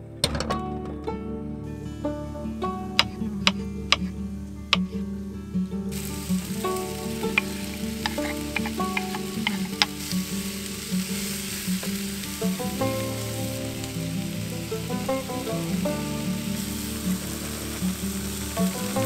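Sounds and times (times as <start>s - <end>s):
guitar music: 0.0s - 19.0s
food sizzling in frying pan: 5.9s - 19.0s.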